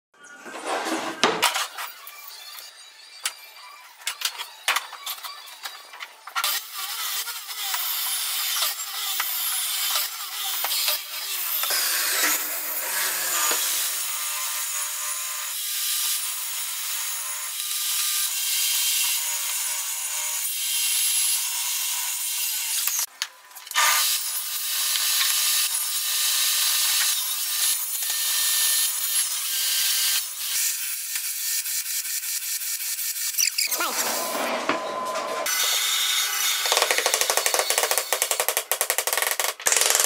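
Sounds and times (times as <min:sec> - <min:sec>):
table saw cutting: 0:00.4 - 0:23.1, 0:23.7 - 0:38.6
miter saw cutting wood: 0:05.3 - 0:23.1, 0:31.4 - 0:38.6.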